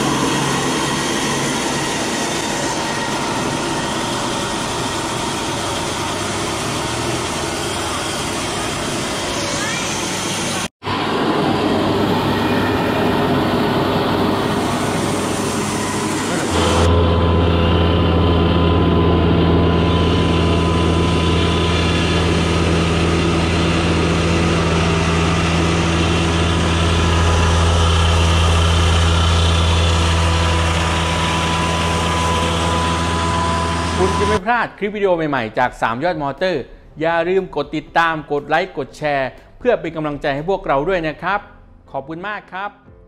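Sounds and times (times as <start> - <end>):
low motor drone: 0.0 - 34.4
rice mill running with grain: 0.0 - 34.4.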